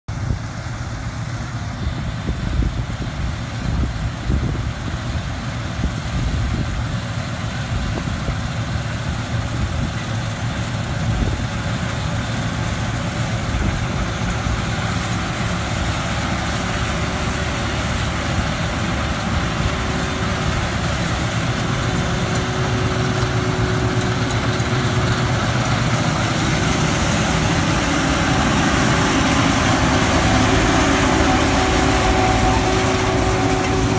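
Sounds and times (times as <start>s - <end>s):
combine harvester running: 0.1s - 33.9s.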